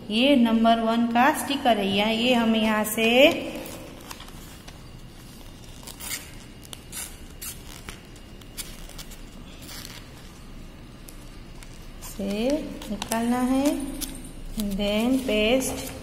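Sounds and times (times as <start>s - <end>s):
sticker peeling paper crackles: 3.3s - 16.0s.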